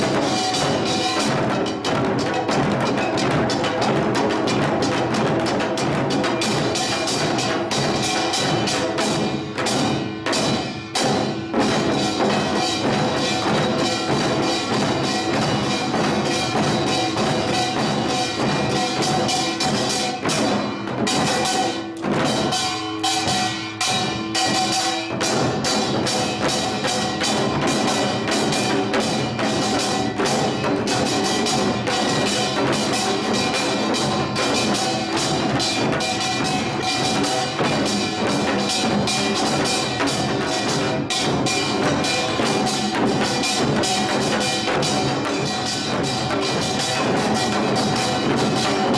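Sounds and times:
barrel drum beats: 0.0s - 48.9s
hourglass drum beats: 0.0s - 48.9s
small gong clanging: 6.2s - 48.9s.

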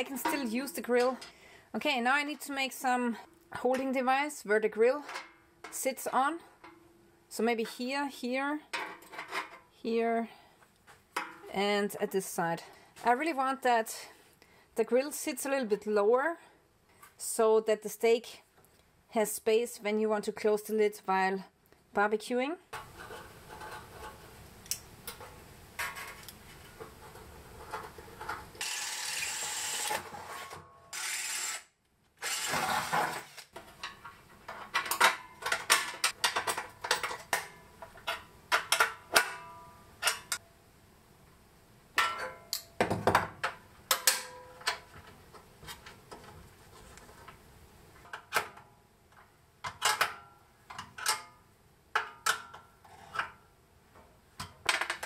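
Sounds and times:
rough steady tool noise: 28.6s - 33.5s.

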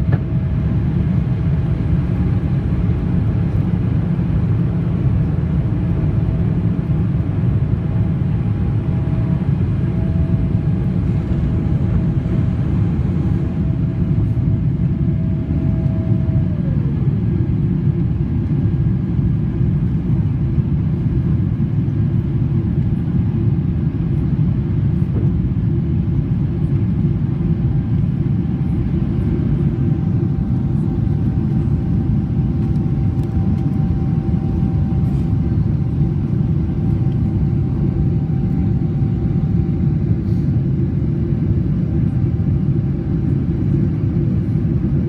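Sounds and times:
faint whine: 0.0s - 23.4s, 24.0s - 45.0s
jet engine cabin rumble: 0.0s - 45.0s.

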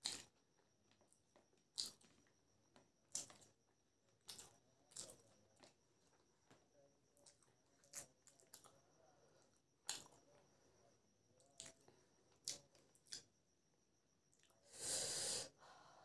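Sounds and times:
wet eating clicks: 1.7s - 2.3s, 3.0s - 3.5s, 4.2s - 5.7s, 9.8s - 10.2s, 11.6s - 13.3s.

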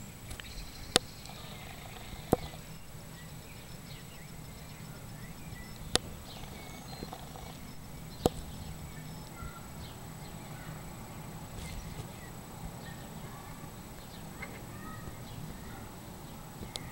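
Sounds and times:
faint high chirps: 0.0s - 16.9s
thin steady high tone: 0.0s - 16.9s
sharp clicks: 0.3s - 2.8s, 5.6s - 8.6s, 16.6s - 16.9s.

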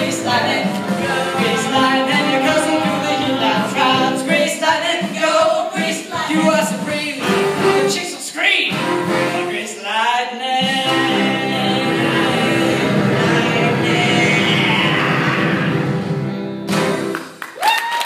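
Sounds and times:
cast singing upbeat rock and roll: 0.0s - 16.1s
musical accompaniment: 0.0s - 17.6s.

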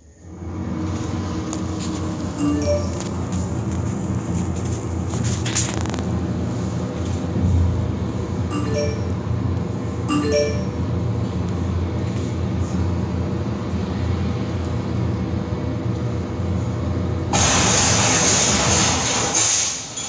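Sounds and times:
chiming note: 2.4s - 3.1s, 8.5s - 9.2s, 10.1s - 10.8s
loud burst of noise: 17.3s - 20.0s.

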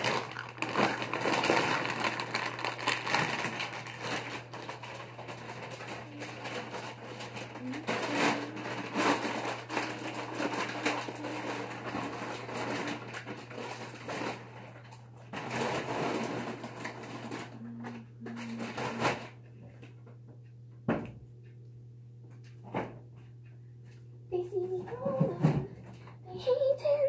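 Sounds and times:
packaging rustling and crunching: 0.0s - 17.6s, 18.3s - 19.3s.

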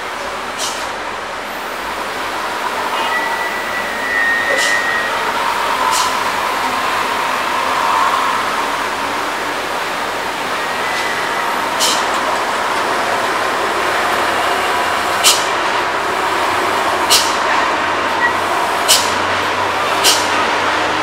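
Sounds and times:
diesel truck engines: 0.0s - 21.0s
air brake hisses: 0.6s - 1.0s, 3.7s - 7.8s, 11.7s - 12.2s, 15.2s - 15.6s, 17.1s - 17.4s, 18.8s - 19.2s, 20.0s - 20.4s.

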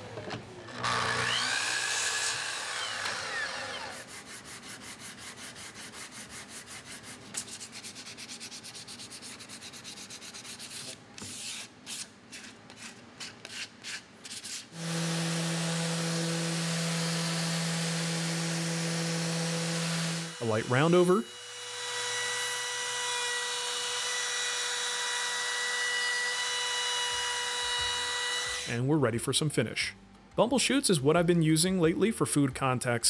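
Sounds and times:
miter saw cutting: 0.7s - 4.1s, 14.8s - 28.8s
sandpaper rubbing on wood: 3.9s - 14.8s
orbital sander humming: 14.8s - 25.6s, 26.4s - 28.7s.

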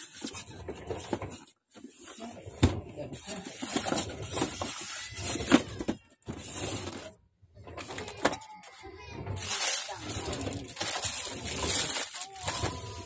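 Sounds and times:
foam packing rubbing and rustling: 9.4s - 13.0s.

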